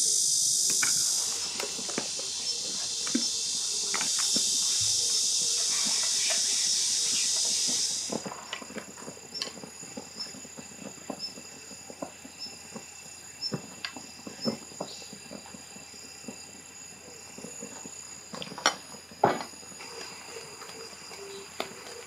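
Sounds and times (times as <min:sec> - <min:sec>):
loud high hiss: 0:00.0 - 0:08.8
faint high chirps: 0:00.5 - 0:08.2.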